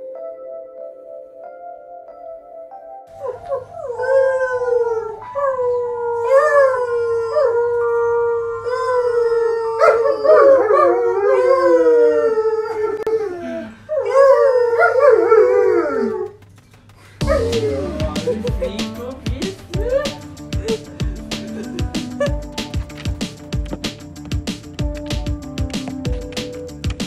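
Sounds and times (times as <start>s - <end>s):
dog howling: 3.2s - 16.4s, 17.2s - 18.0s.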